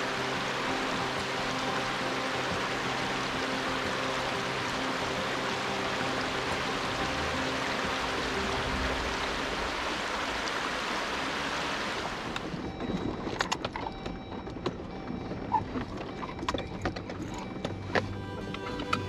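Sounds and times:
rushing stream water: 0.0 - 12.8, 18.0 - 19.0.

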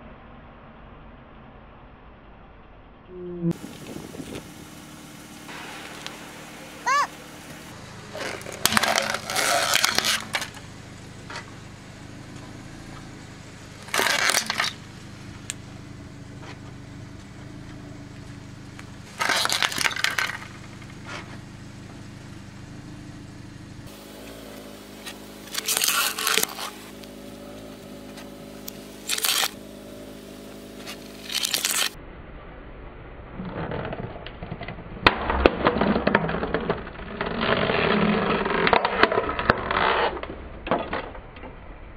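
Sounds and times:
car engine hum: 3.1 - 32.0
plastic case crunching under tyre: 8.1 - 10.7, 13.8 - 15.6, 18.7 - 21.4, 25.0 - 27.1, 28.2 - 29.6, 30.8 - 32.0.

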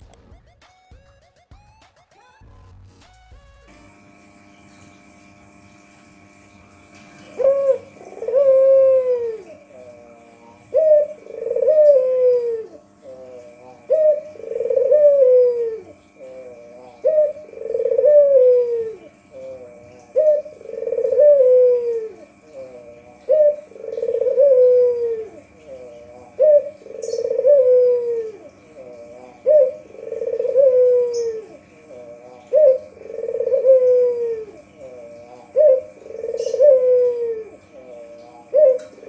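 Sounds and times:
dove cooing: 6.2 - 39.0.

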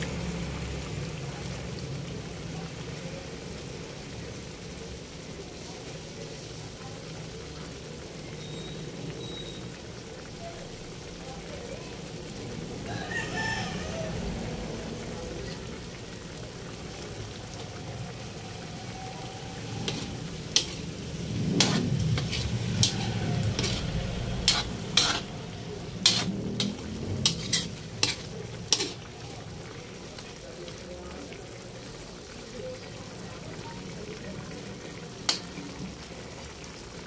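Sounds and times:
metal utensils scraping a wok: 19.1 - 29.2
metal clinking against pan: 19.9 - 20.8, 24.4 - 25.3, 26.0 - 29.0.

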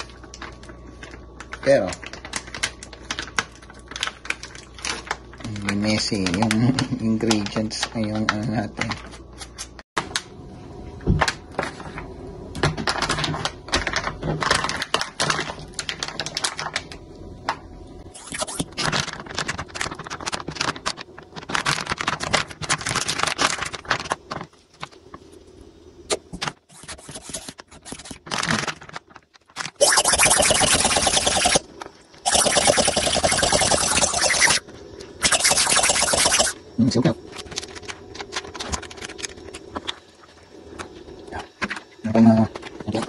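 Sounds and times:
plastic bag crinkling: 0.0 - 8.4, 18.3 - 24.7, 27.9 - 29.8.

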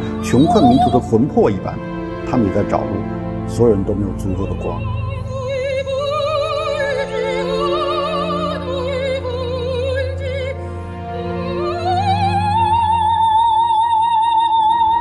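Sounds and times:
operatic singing with vibrato: 0.0 - 1.8
sustained low accompaniment: 0.0 - 5.8.

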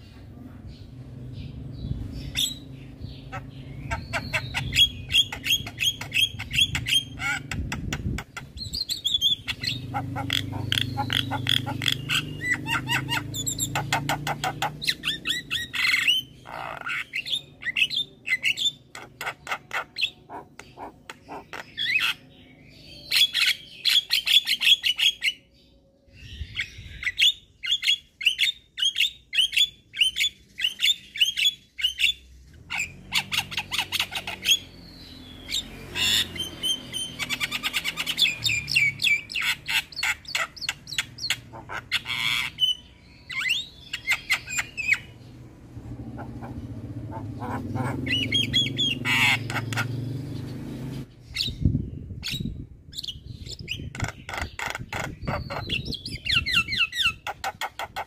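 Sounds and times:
myna chattering and whistling: 46.2 - 49.9.

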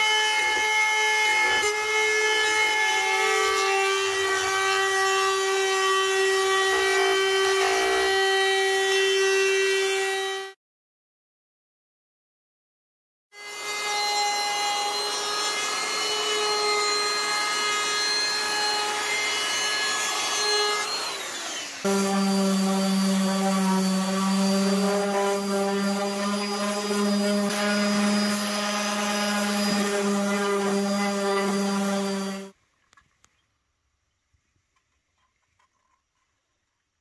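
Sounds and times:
orbital sander on wood: 0.0 - 10.5, 13.5 - 32.5
handheld router running: 14.8 - 32.5.

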